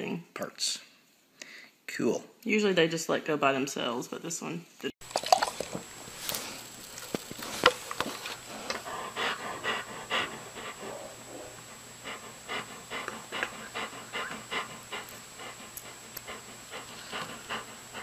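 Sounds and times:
dog panting: 0:05.6 - 0:18.0.

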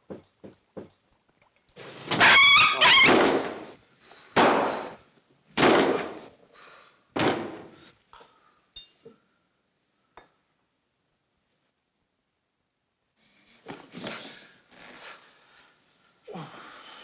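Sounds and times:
small dog yelping: 0:02.2 - 0:03.1
loud thuds: 0:03.1 - 0:03.8, 0:04.4 - 0:05.0, 0:05.6 - 0:06.3, 0:07.2 - 0:07.8.

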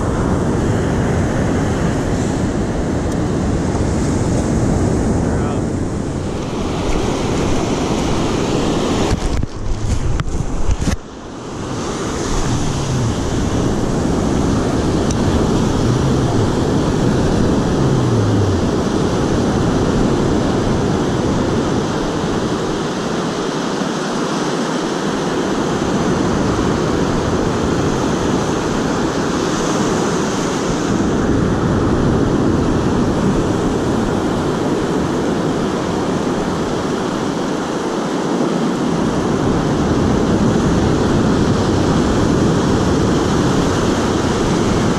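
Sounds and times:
wind buffeting microphone: 0:00.0 - 0:23.4
surf breaking on beach: 0:00.0 - 0:44.9.

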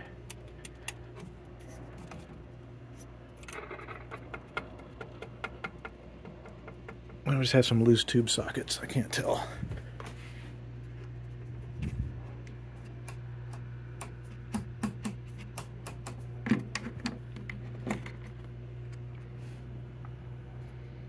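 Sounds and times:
radio speaker hum: 0:07.1 - 0:14.4.

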